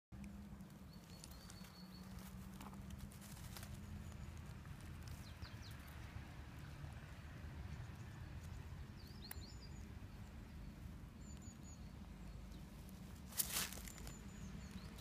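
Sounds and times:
rustling in dry leaves: 0:00.5 - 0:07.2, 0:12.6 - 0:15.0.

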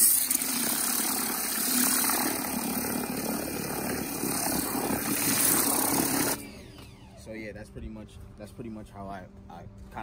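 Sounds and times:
pressure washer spraying water: 0:00.0 - 0:06.4
water churning in bucket: 0:00.0 - 0:06.4.

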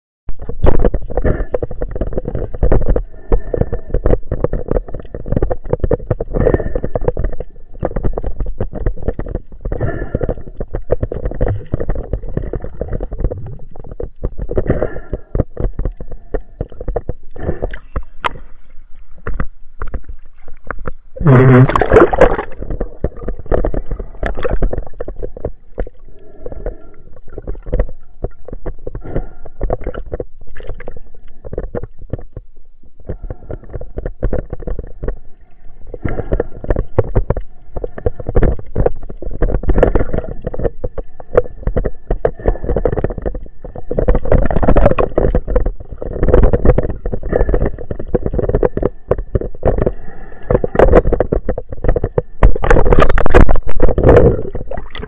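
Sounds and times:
muffled underwater rushing water: 0:00.3 - 0:55.0.

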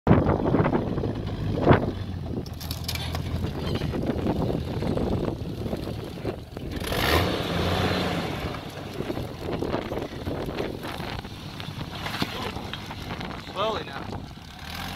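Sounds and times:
car engine running at low revs: 0:00.1 - 0:14.9
rough rumbling and crackling: 0:00.1 - 0:14.9.

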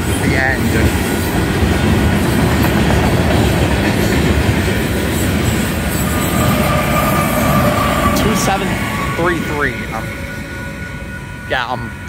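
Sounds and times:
train wheels rumbling on rails: 0:00.0 - 0:12.0
steady high tone: 0:05.2 - 0:12.0.

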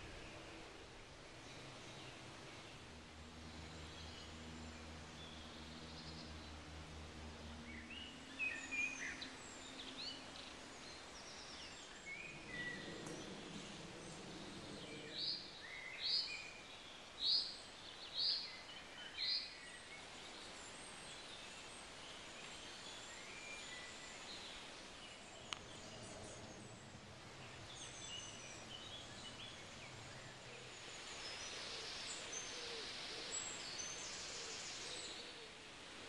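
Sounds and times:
low steady hum: 0:00.0 - 0:17.0, 0:20.0 - 0:34.8
small birds singing: 0:00.0 - 0:36.0.

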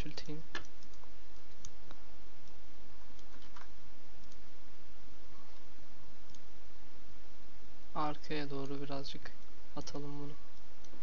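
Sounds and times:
computer mouse and keyboard clicks: 0:00.0 - 0:04.4
low hum: 0:00.0 - 0:11.0
microphone hiss: 0:00.0 - 0:11.0.

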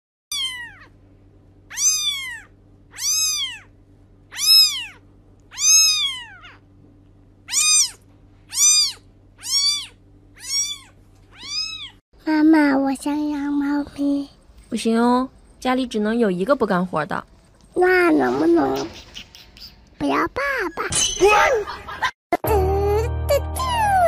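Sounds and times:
kitten meowing: 0:00.3 - 0:00.9, 0:01.7 - 0:03.7, 0:04.3 - 0:06.6, 0:07.5 - 0:12.0.

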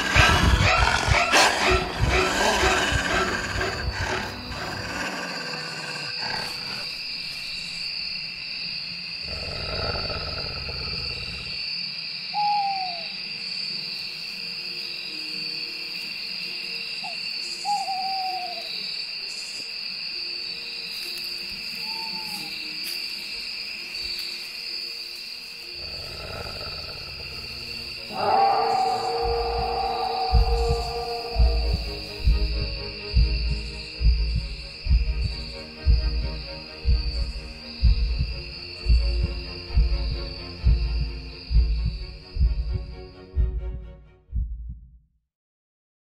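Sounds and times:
owl hooting: 0:00.0 - 0:06.9, 0:12.3 - 0:13.2, 0:17.0 - 0:18.9, 0:21.7 - 0:22.6, 0:25.8 - 0:36.0
high-pitched night woodland drone: 0:00.0 - 0:43.6
low rumble: 0:28.2 - 0:45.0.

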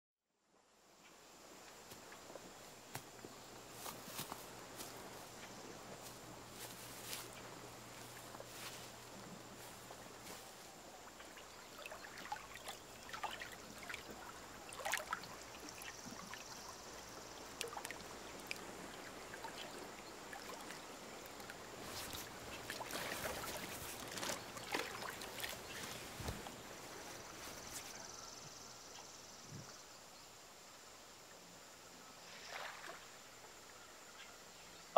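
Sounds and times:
river water splashing: 0:01.9 - 0:28.0, 0:32.2 - 0:33.6.

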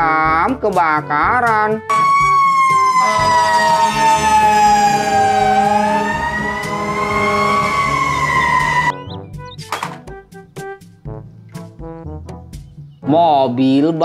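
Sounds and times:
fire engine siren wailing: 0:01.9 - 0:09.1.

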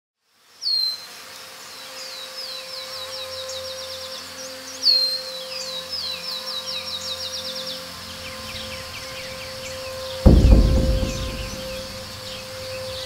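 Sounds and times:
steady low hum: 0:08.6 - 0:13.0.

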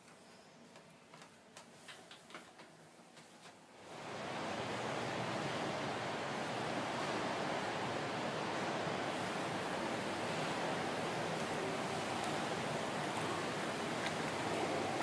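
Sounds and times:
running water rushing: 0:03.8 - 0:15.0.

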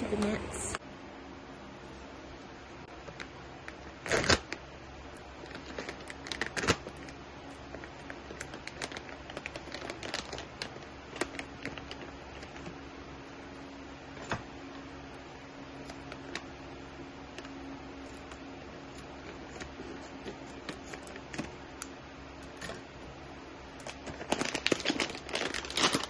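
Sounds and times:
plastic bag crinkling: 0:03.1 - 0:13.6, 0:15.7 - 0:21.8, 0:23.6 - 0:26.0.

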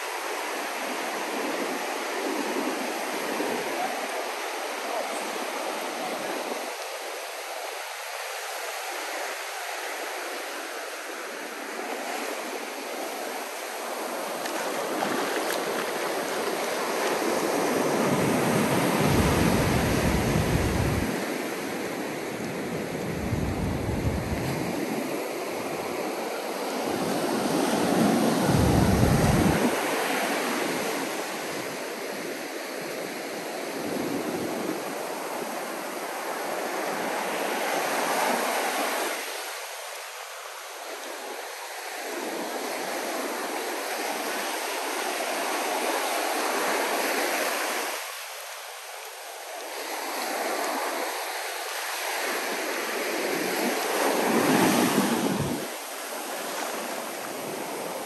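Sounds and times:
ocean surf breaking: 0:11.5 - 0:31.8, 0:51.8 - 0:58.0.

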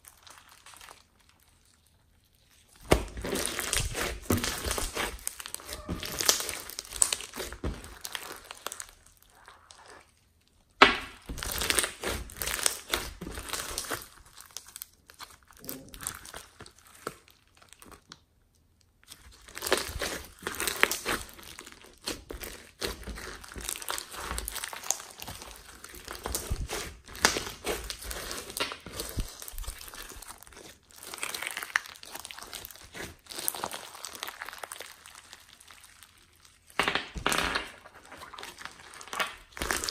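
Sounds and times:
slime crackling and popping: 0:00.0 - 0:39.9.

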